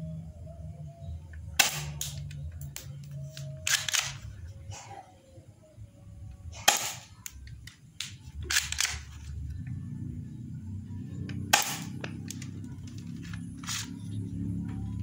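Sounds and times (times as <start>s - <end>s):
airsoft pistol shots: 1.6s - 2.2s, 6.6s - 7.2s, 11.5s - 12.1s.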